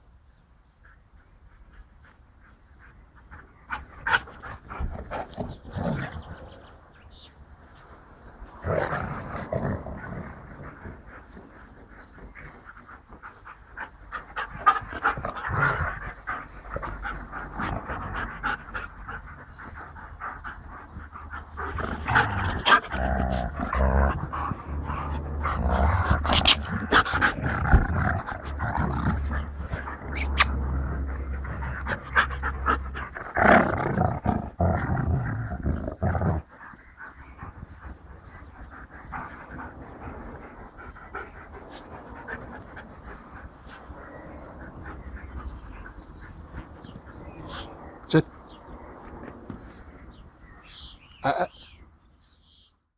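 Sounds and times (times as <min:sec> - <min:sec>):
dogs panting: 0:00.8 - 0:08.6, 0:09.6 - 0:33.4, 0:35.6 - 0:51.0
dogs growling: 0:03.3 - 0:07.0, 0:08.3 - 0:51.8
low rumble: 0:14.0 - 0:33.3.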